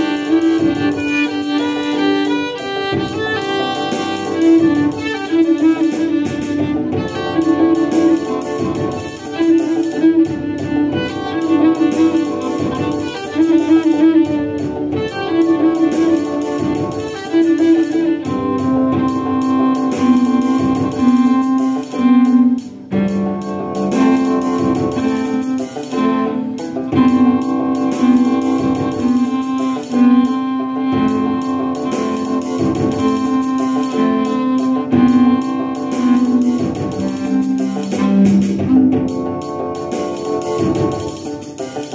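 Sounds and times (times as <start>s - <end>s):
bowed cello melody: 0.0s - 41.9s.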